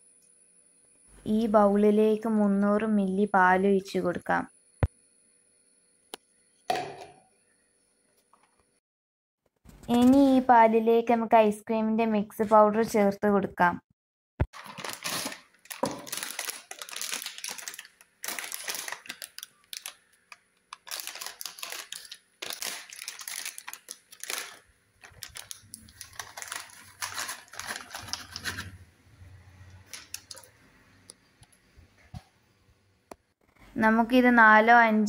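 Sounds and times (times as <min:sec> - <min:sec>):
foil sachet crinkling: 0:14.5 - 0:28.8, 0:29.8 - 0:30.5.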